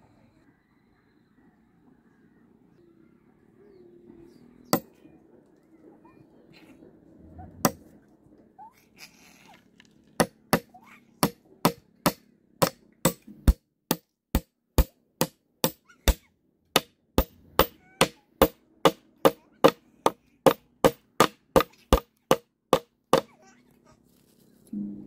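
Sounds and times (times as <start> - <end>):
knife hammering nails into bamboo: 10.2 - 16.2, 16.8 - 23.3.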